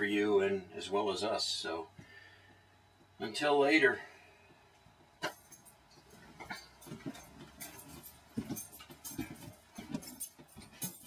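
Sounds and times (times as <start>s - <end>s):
footsteps on trailer floor: 4.5s - 11.0s.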